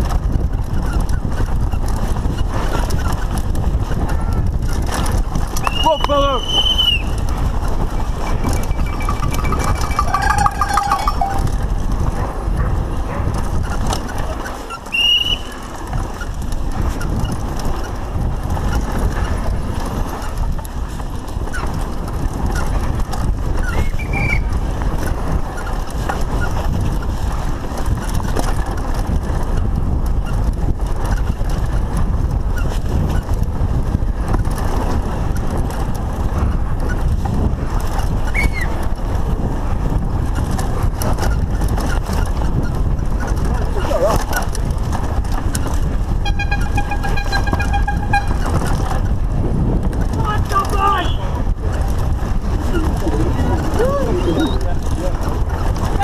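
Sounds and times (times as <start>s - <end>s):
bike rattling and knocking: 0.0s - 56.0s
tyres rumbling on dirt: 0.0s - 56.0s
wind on microphone: 0.0s - 56.0s
short high squeaks: 7.8s - 11.6s, 38.3s - 38.8s, 46.3s - 48.7s.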